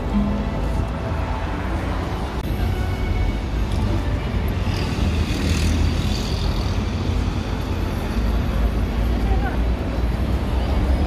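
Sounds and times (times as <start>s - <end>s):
low traffic rumble: 0.0s - 11.0s.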